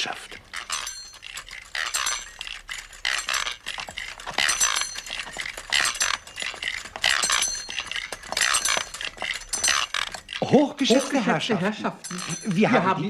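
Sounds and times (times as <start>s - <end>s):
machine cart rattling and clinking: 0.0s - 13.0s.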